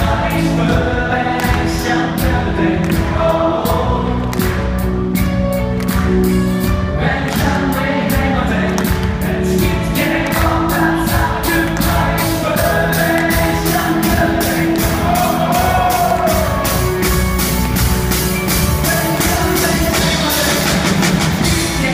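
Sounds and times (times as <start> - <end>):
bass guitar: 0.0 - 21.9
drums beating: 0.0 - 21.9
person singing: 7.0 - 17.6, 18.3 - 21.9.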